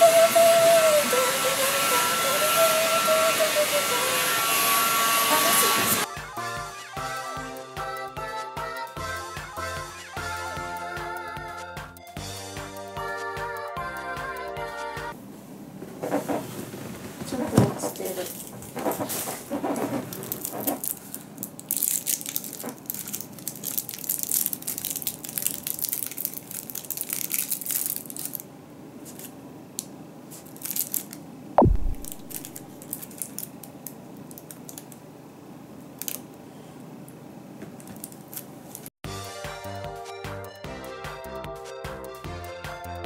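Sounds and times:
falling whistle-like tone: 0.0 - 4.4
wrapper crinkling: 17.9 - 29.4, 30.3 - 31.2, 32.0 - 35.0, 36.0 - 36.3, 37.8 - 38.9.

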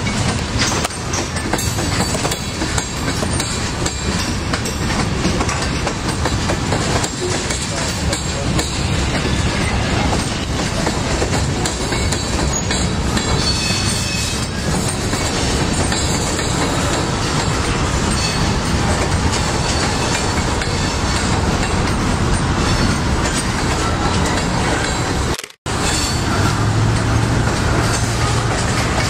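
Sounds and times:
train wheels rumbling on rail: 0.0 - 29.0
wheels clicking over rail joints: 0.0 - 29.0
high wheel squeal: 12.0 - 15.2, 22.4 - 26.8.

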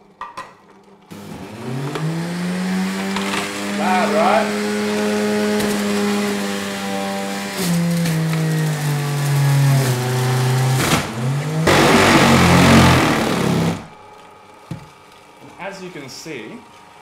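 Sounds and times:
juicer motor humming: 1.0 - 14.6
harsh grinding of produce: 1.1 - 14.1.

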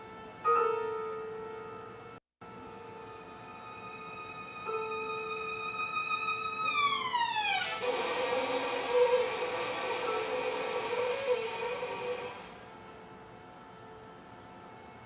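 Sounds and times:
violin and cello sustained notes: 3.1 - 12.7
scratchy bowed string texture: 4.0 - 12.5.

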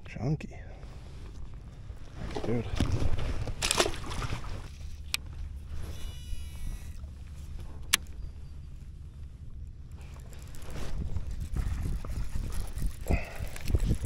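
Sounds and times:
steady low rumble: 0.0 - 14.0
buzzing rattle: 4.6 - 14.0.

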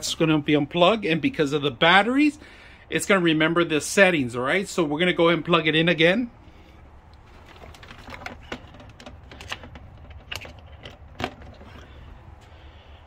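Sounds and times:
plastic clicks and knocks: 7.5 - 11.9.

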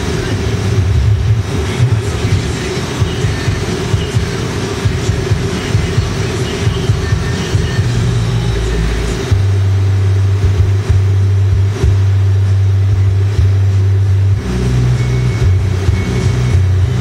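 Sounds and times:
torch flame rushing rumble: 0.0 - 8.4.

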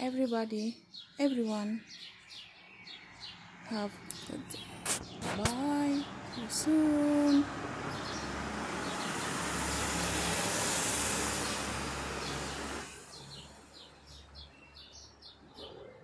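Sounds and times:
birds chirping: 0.0 - 16.0
passing vehicle road noise: 2.3 - 14.9.

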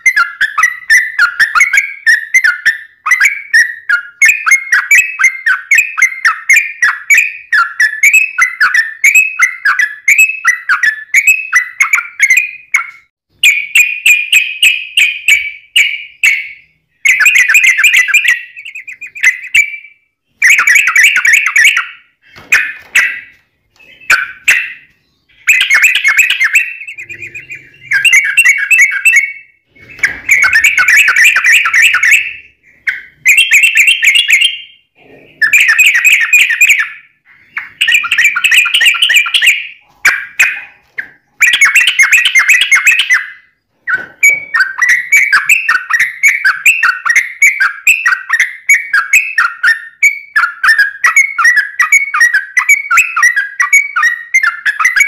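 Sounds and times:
bulbul singing chattering notes: 9.6 - 49.6.

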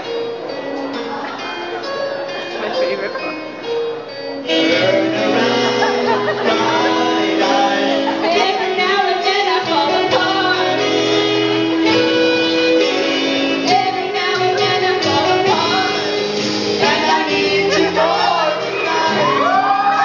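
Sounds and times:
instrumental backing music: 0.0 - 20.0
man singing: 4.5 - 10.9, 16.8 - 19.6
woman singing into a microphone: 8.2 - 11.2, 13.6 - 16.2, 16.8 - 20.0.

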